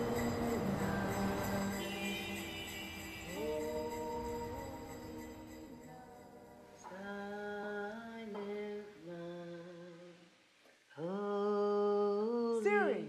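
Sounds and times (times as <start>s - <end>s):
person humming a slow tune: 0.0s - 10.2s.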